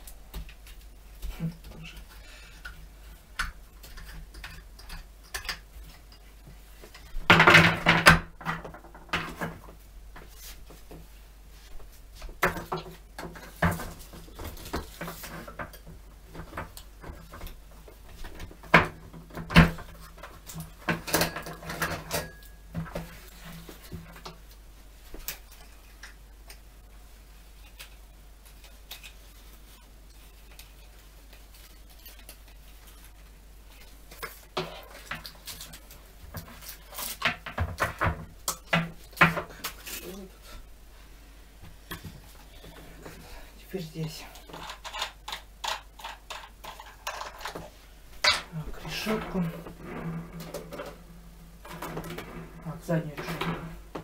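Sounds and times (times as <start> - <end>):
hard plastic parts clattering: 44.4 - 54.0.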